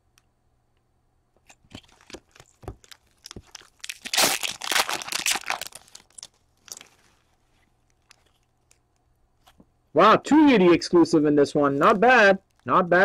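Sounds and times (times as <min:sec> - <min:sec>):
wrapper tearing and crinkling: 0:01.5 - 0:08.8.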